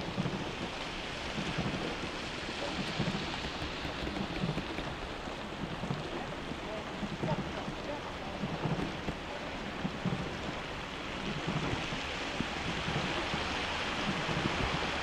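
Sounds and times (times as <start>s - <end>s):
rain hissing on wet pavement: 0.0s - 15.0s
low rumbling knocks: 2.8s - 10.6s.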